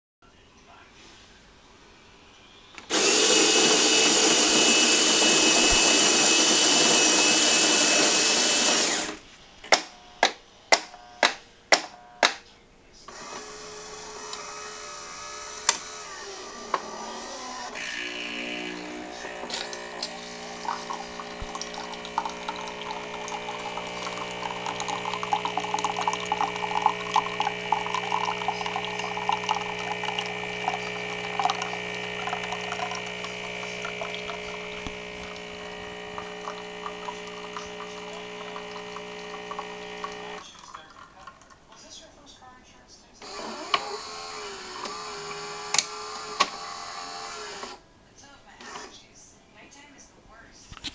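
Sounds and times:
coffee grinder running: 0:02.9 - 0:09.2, 0:13.1 - 0:40.7, 0:43.2 - 0:47.8
pump humming: 0:02.9 - 0:09.2, 0:13.1 - 0:40.8, 0:43.2 - 0:47.8
coffee trickling into a mug: 0:18.0 - 0:41.8.

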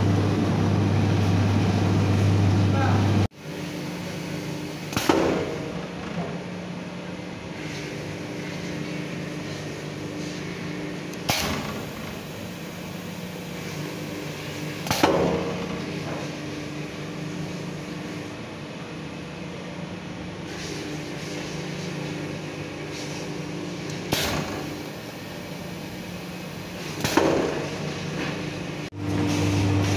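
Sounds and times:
machine hum: 0:00.0 - 0:04.8, 0:27.4 - 0:29.9.

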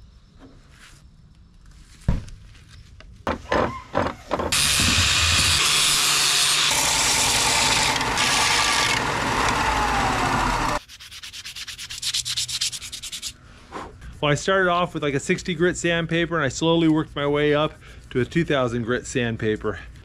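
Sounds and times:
belt sander grinding wood: 0:04.5 - 0:10.8
hand sanding strokes: 0:06.7 - 0:19.8.

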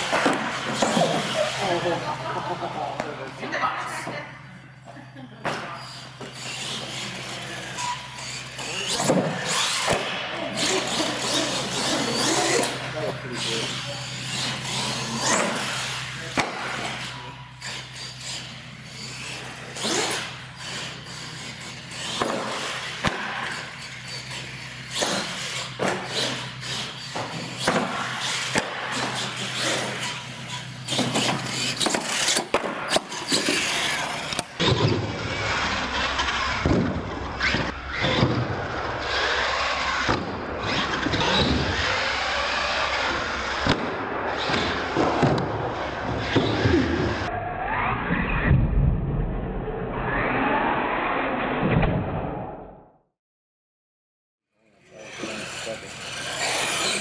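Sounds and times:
toy truck motor revving: 0:00.0 - 0:02.9, 0:05.8 - 0:36.6, 0:39.0 - 0:43.7, 0:54.8 - 0:57.0.

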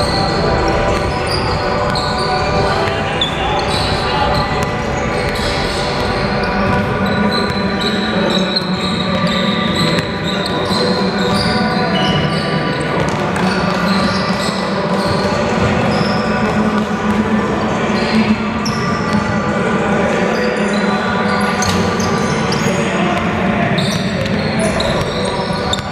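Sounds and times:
sneakers squeaking on hardwood: 0:00.0 - 0:15.2.

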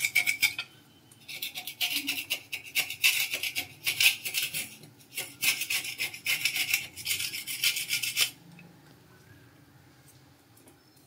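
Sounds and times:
scrub brush scrubbing ceramic tiles: 0:01.3 - 0:08.4.

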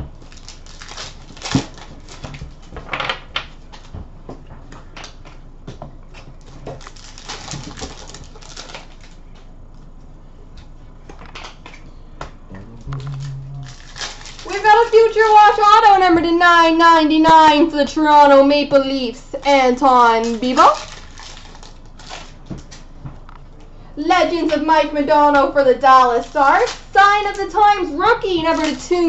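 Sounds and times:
crinkly rustles: 0:00.0 - 0:03.0, 0:06.3 - 0:09.4, 0:13.0 - 0:15.6, 0:19.4 - 0:22.9, 0:26.0 - 0:29.0
foil card packs tearing: 0:00.1 - 0:03.0, 0:06.4 - 0:09.2, 0:13.0 - 0:15.6, 0:19.4 - 0:22.8.

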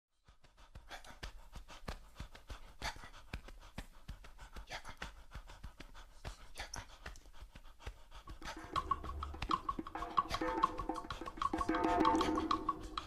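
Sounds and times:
djembe drumming: 0:08.4 - 0:13.0.

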